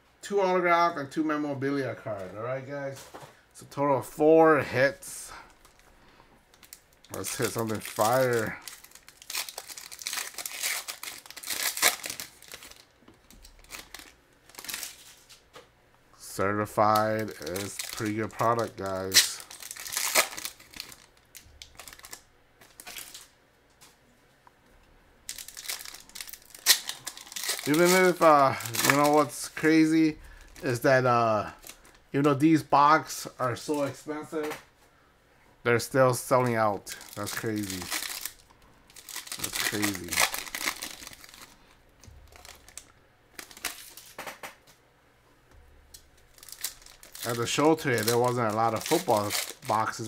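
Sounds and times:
foil wrapper crinkling: 0:05.3 - 0:05.9, 0:06.5 - 0:15.5, 0:16.8 - 0:23.3, 0:25.3 - 0:32.0, 0:36.2 - 0:44.3, 0:46.2 - 0:50.0.

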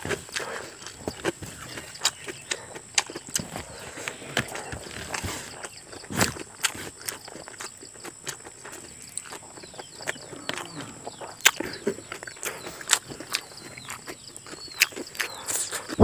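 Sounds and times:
mouth smacks: 0:09.1 - 0:16.0.

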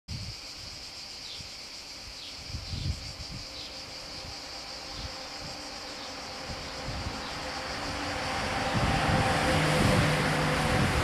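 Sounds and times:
insects droning: 0:00.1 - 0:11.0
low rumbles: 0:03.0 - 0:11.0.

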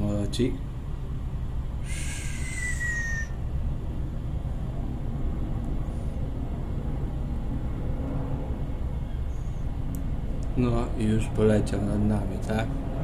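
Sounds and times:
cable car gondola rumbling: 0:00.0 - 0:13.0
short hissing squeal: 0:01.8 - 0:03.4, 0:09.0 - 0:09.6.

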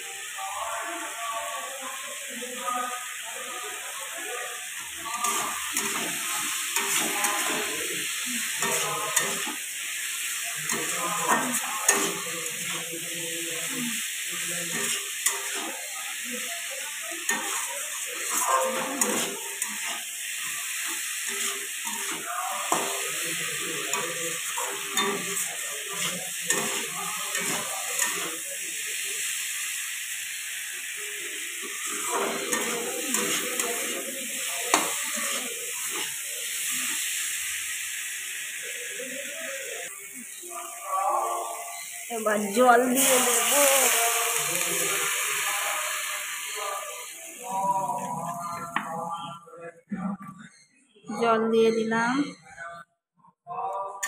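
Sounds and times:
potatoes sizzling in oil: 0:00.0 - 0:48.9
metal spatula scraping a pan: 0:05.0 - 0:13.7, 0:14.3 - 0:28.4, 0:31.6 - 0:37.0.

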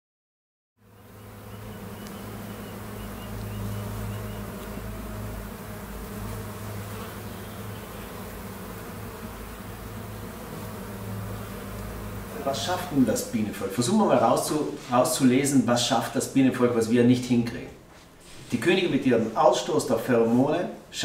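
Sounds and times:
bees humming: 0:00.8 - 0:17.4.

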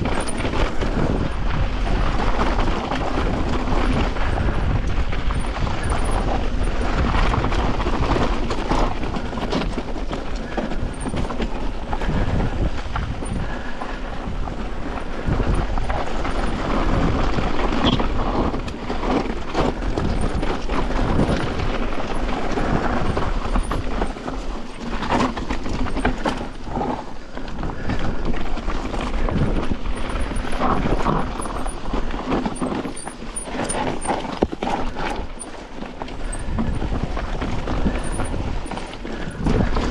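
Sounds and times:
bike rattling and knocking: 0:00.0 - 0:39.9
bike tyres crunching over rock: 0:00.0 - 0:39.9.

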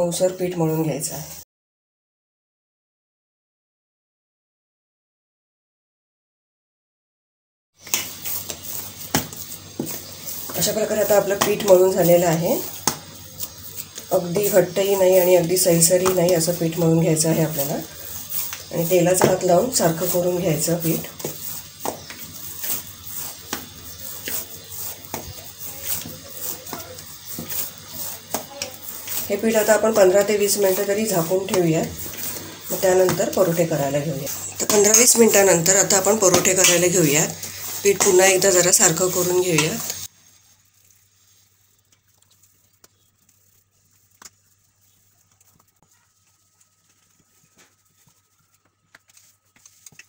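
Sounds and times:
rolling pin on wooden board: 0:07.9 - 0:40.1.

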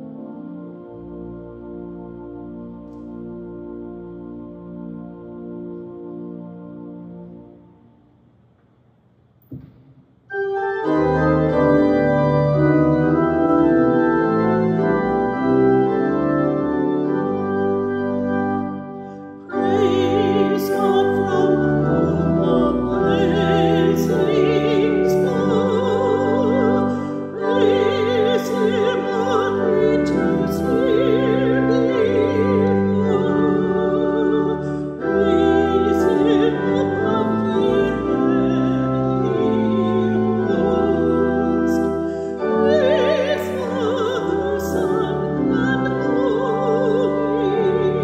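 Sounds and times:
organ playing held chords: 0:00.0 - 0:08.2, 0:10.3 - 0:48.0
woman singing with vibrato: 0:19.5 - 0:48.0.

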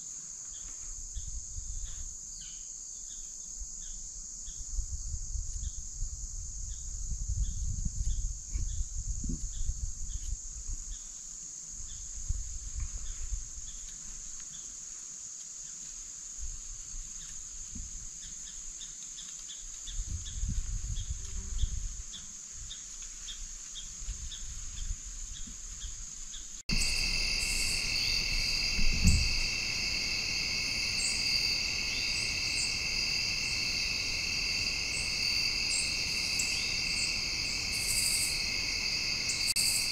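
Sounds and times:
insect chorus drone: 0:00.0 - 0:39.9
brief low thump: 0:28.8 - 0:29.4.

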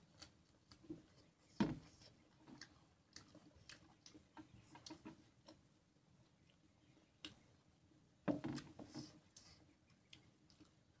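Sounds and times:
people chewing food: 0:00.0 - 0:11.0
lip smacks and mouth clicks: 0:02.4 - 0:05.6.

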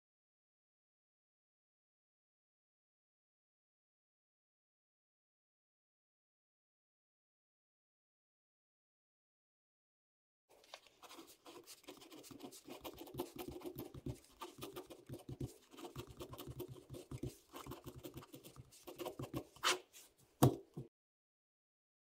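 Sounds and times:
pen scratching on paper: 0:10.7 - 0:20.1
pen tap: 0:12.8 - 0:19.8, 0:20.4 - 0:20.9.

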